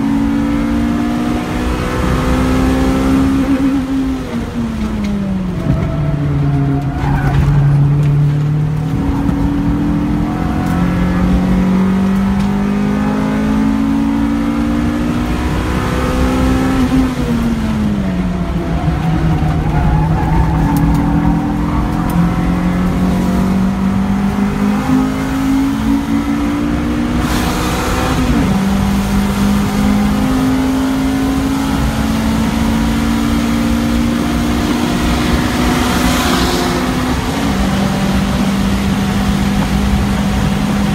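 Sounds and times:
car engine accelerating: 0:00.0 - 0:40.9
road and wind noise: 0:00.0 - 0:40.9.

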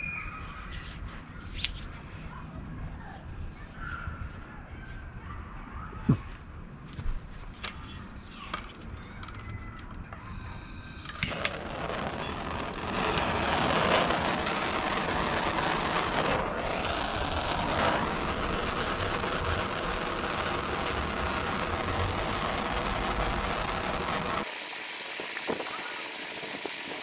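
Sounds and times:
gas torch flame hissing: 0:10.5 - 0:27.0
gas torch igniting click: 0:11.0 - 0:13.2, 0:23.9 - 0:27.0.

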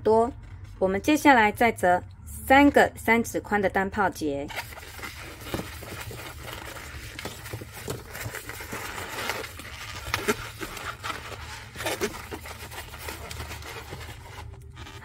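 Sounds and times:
balloon squeaking and rubbing: 0:04.6 - 0:15.0.

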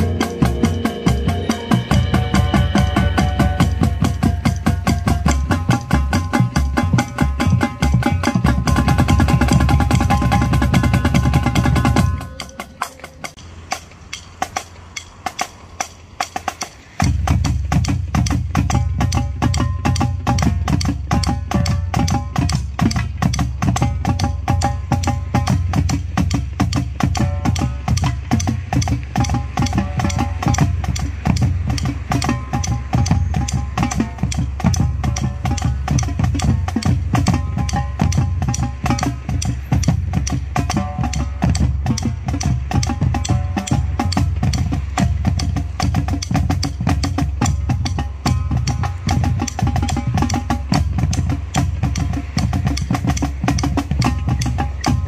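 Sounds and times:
bass drums: 0:00.0 - 0:13.4, 0:17.0 - 0:55.0
marching drumline cadence: 0:00.0 - 0:55.0
drum stick clicks: 0:48.6 - 0:55.0.

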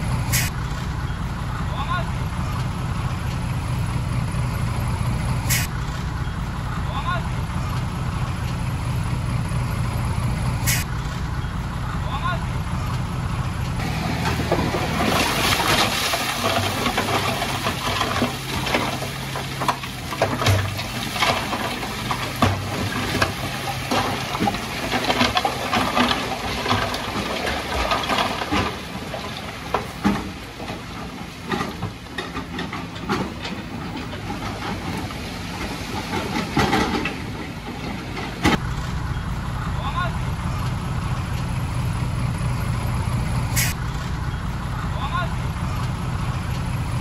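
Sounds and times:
truck engine humming: 0:00.0 - 0:47.0
rock and dirt sliding: 0:08.0 - 0:47.0
stones clattering: 0:14.0 - 0:37.2.

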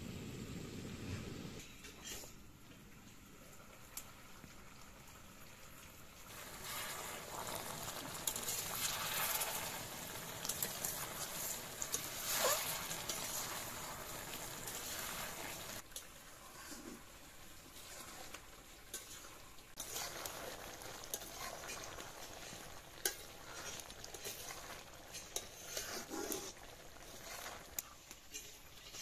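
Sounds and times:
curry simmering and sizzling: 0:00.0 - 0:29.0
metal spatula scraping a pan: 0:01.6 - 0:02.4, 0:06.3 - 0:15.8, 0:17.7 - 0:29.0.

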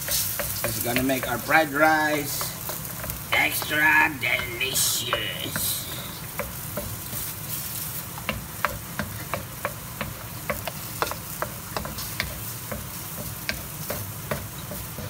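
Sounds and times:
food sizzling in a wok: 0:00.0 - 0:15.0
wooden spatula scraping a pan: 0:05.9 - 0:15.0.

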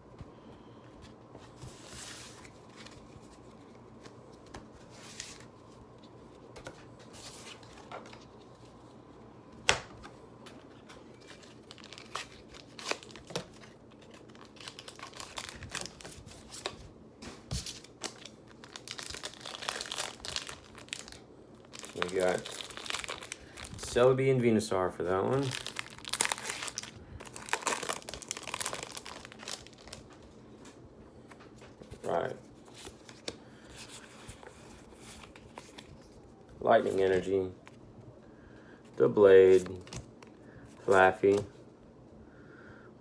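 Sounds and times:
plastic and paper rustling: 0:10.5 - 0:24.0, 0:25.3 - 0:30.8
packaging crinkling and tearing: 0:11.1 - 0:16.8, 0:17.5 - 0:24.0, 0:25.3 - 0:30.2.

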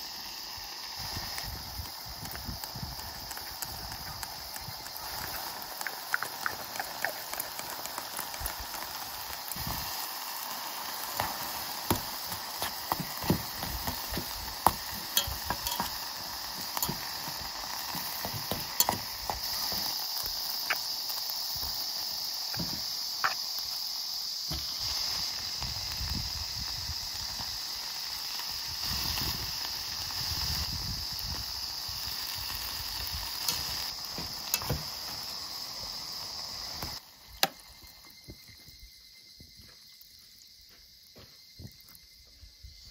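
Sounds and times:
insects hissing: 0:00.0 - 0:42.9
chopsticks tapping metal pot: 0:12.9 - 0:16.0, 0:16.6 - 0:19.9.

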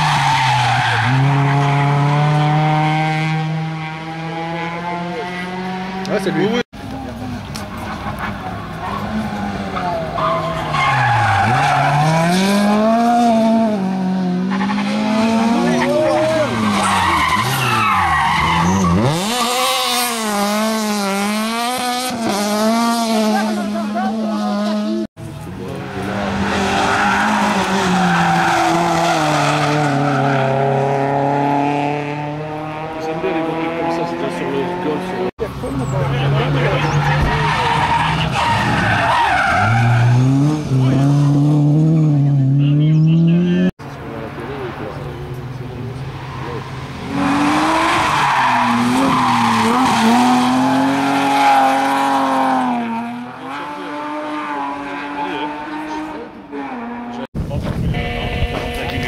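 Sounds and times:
rally car engine at high revs: 0:00.0 - 0:43.8, 0:45.2 - 0:57.3.

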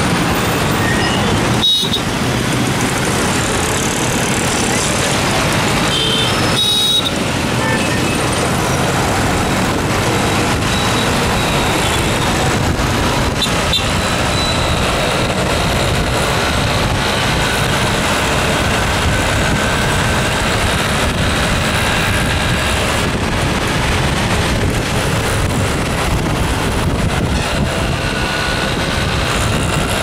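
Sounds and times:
motorbike engine: 0:00.0 - 0:30.0
surrounding traffic: 0:00.0 - 0:30.0
wind on microphone: 0:08.5 - 0:30.0.

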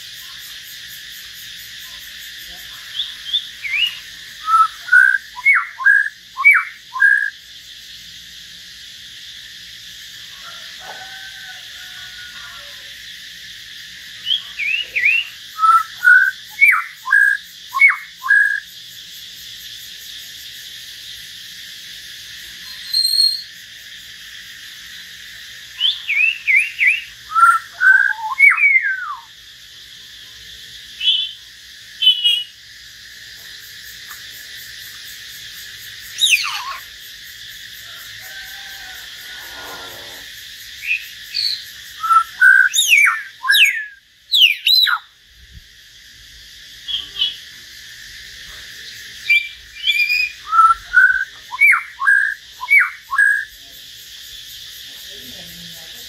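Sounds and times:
birds singing whistled phrases: 0:02.8 - 0:07.4, 0:14.2 - 0:18.7, 0:22.6 - 0:23.5, 0:25.8 - 0:29.4, 0:31.0 - 0:31.4, 0:32.0 - 0:32.6, 0:36.2 - 0:36.9, 0:40.8 - 0:45.1, 0:49.2 - 0:53.5.

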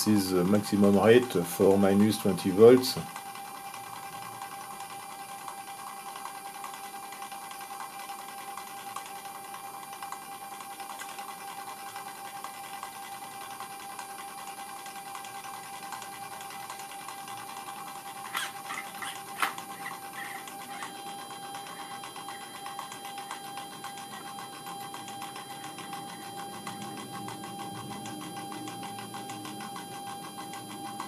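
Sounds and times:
stepper motor whirring: 0:17.6 - 0:31.0.

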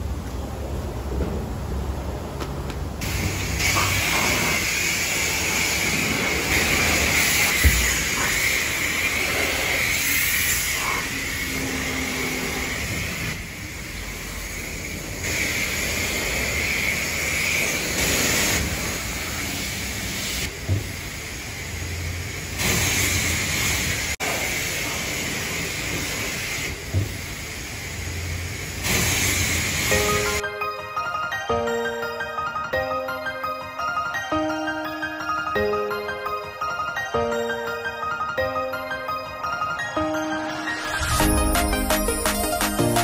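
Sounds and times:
pressure washer spraying water: 0:03.0 - 0:30.4.

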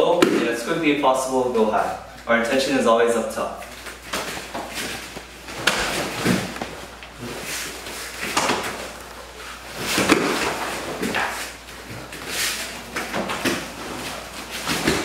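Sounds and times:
feet and bodies thumping: 0:03.7 - 0:15.0.

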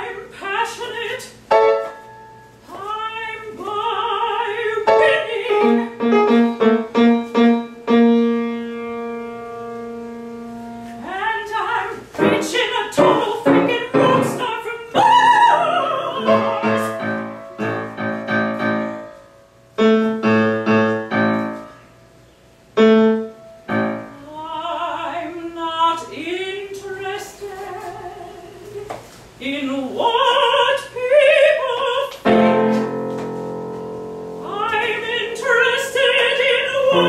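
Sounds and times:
soprano singing operatically: 0:00.0 - 0:01.4, 0:02.7 - 0:06.6, 0:11.0 - 0:18.0, 0:23.7 - 0:32.8, 0:34.4 - 0:37.0
grand piano chords: 0:00.8 - 0:02.6, 0:03.2 - 0:26.0, 0:30.2 - 0:37.0.

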